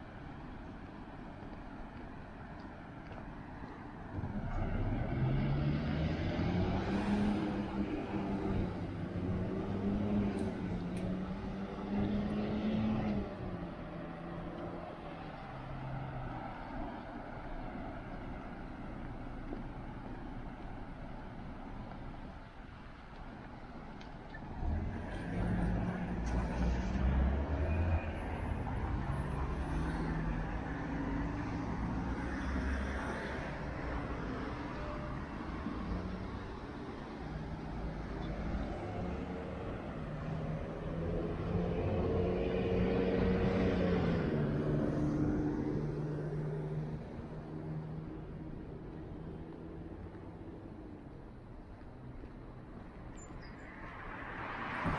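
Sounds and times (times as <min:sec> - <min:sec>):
road noise: 0:00.0 - 0:54.9
vehicle engine speeding up: 0:04.2 - 0:14.7, 0:37.6 - 0:48.1.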